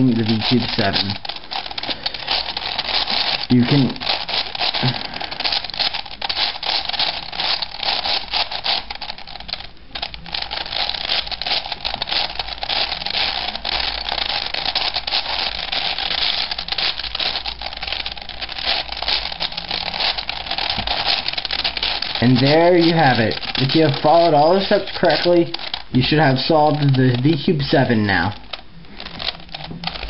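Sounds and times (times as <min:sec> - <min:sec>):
puzzle cube clicking: 0:00.0 - 0:30.0.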